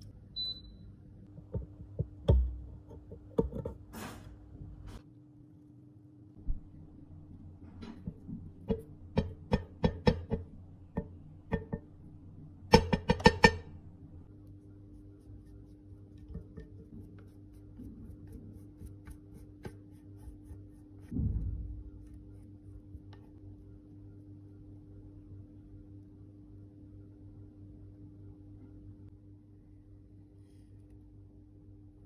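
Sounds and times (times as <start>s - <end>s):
makeup brush brushing: 14.4s - 21.1s
low thud: 21.0s - 22.4s.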